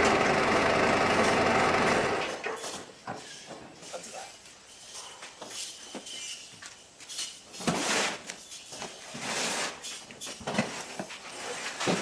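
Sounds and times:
footsteps on concrete: 4.4 - 7.4
cardboard rustling scrapes: 7.6 - 12.0.

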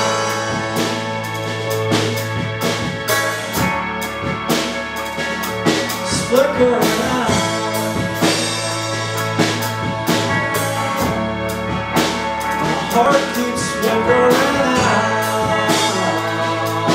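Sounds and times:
drum kit beat: 0.0 - 16.9
electric bass: 0.0 - 16.9
electric guitar: 0.0 - 16.9
keyboard: 0.0 - 16.9
person singing: 5.2 - 16.9.

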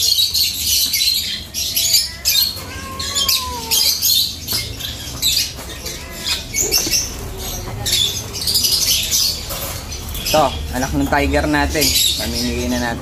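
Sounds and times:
birds chirping and squawking: 0.0 - 13.0.

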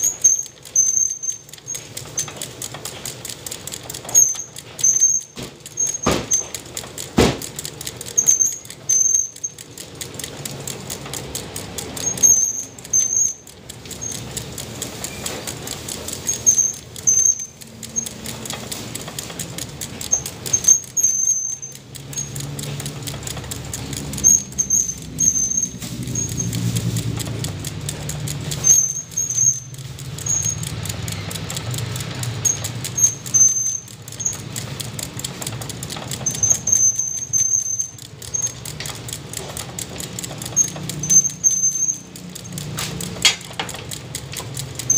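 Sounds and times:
short high squeak: 4.1 - 6.5, 8.2 - 9.6, 16.3 - 18.1, 24.2 - 26.6, 28.6 - 31.4.

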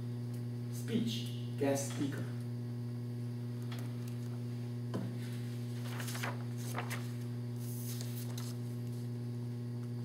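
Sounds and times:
electrical mains hum: 0.0 - 10.0
paper rustling: 5.3 - 9.1.

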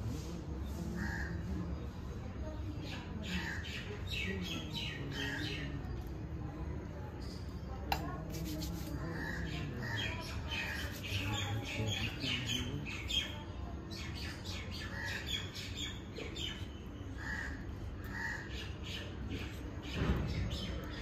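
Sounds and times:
birds chirping and calling: 2.7 - 6.1, 9.0 - 21.0.

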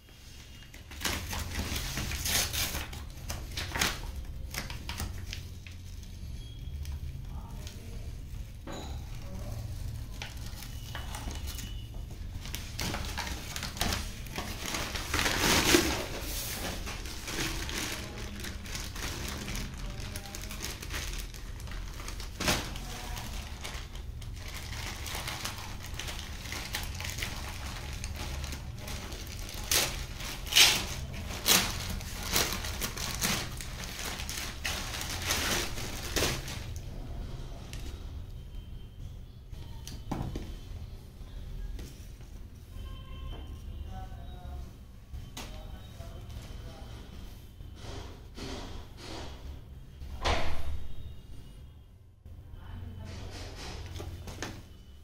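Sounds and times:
paper and plastic crinkling: 0.0 - 38.2, 53.3 - 55.0.

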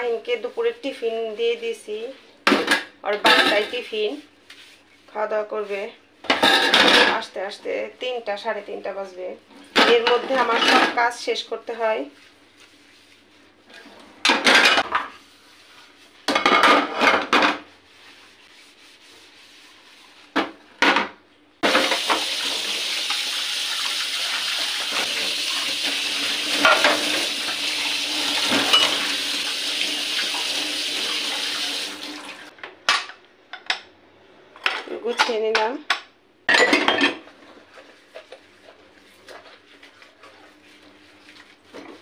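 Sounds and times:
dishes clattering in a steel sink: 2.4 - 3.9, 6.2 - 7.3, 9.6 - 11.0, 13.7 - 15.2, 16.3 - 17.7, 20.4 - 23.3, 24.8 - 29.2, 34.6 - 37.5
kitchen tap running: 21.6 - 32.5
water splashing over a pot: 21.6 - 32.5.

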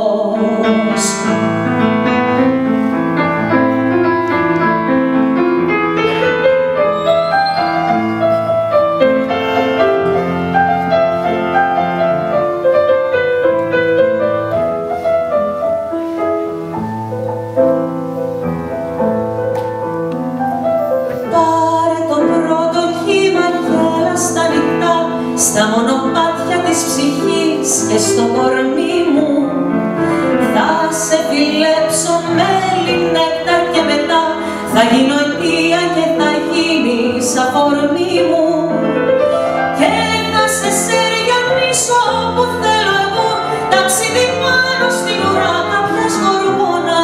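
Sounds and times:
person singing: 0.0 - 1.7
piano chords over bass line: 0.0 - 47.0.

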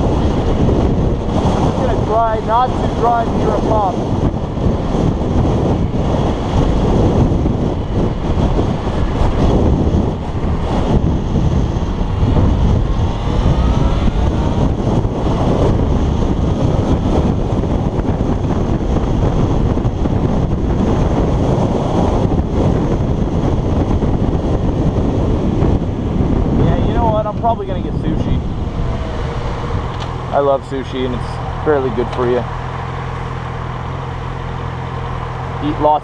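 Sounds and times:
wind buffeting microphone: 0.0 - 36.0
faint rising tones: 27.9 - 35.3.

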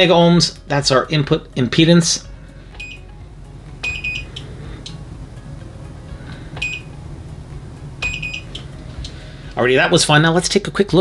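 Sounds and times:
short high-pitched beeps: 3.8 - 4.4, 8.0 - 8.6.

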